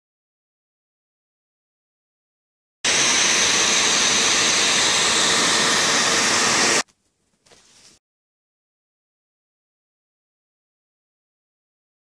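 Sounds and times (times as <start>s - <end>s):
hot-air blower rushing: 2.8s - 6.9s.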